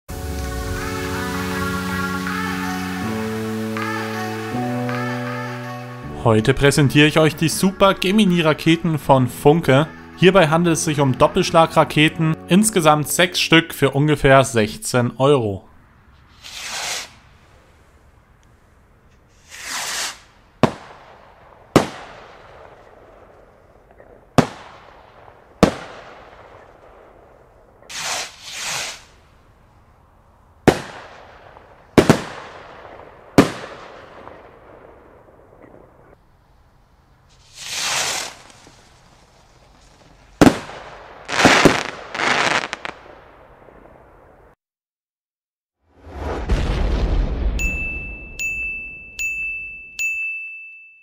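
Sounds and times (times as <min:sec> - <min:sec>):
firework bangs with echo: 0:19.5 - 0:23.3, 0:24.0 - 0:29.1, 0:30.6 - 0:35.8, 0:40.4 - 0:44.0
rocket launch whoosh: 0:27.9 - 0:29.2, 0:37.4 - 0:39.2, 0:45.9 - 0:47.7.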